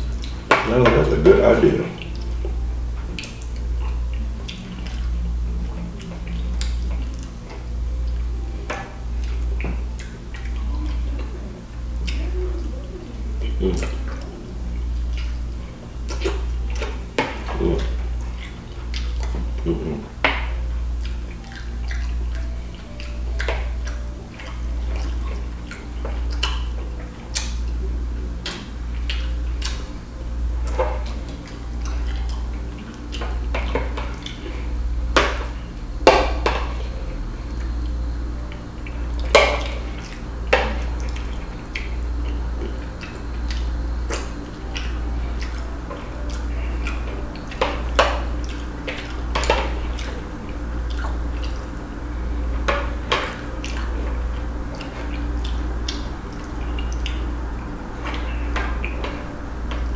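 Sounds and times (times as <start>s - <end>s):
low hum: 0.0s - 59.9s.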